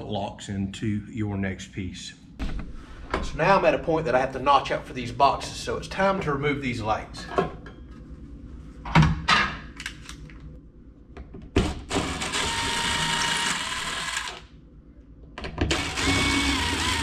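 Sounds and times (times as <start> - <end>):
cordless drill whining: 11.9 - 14.4, 15.7 - 17.0.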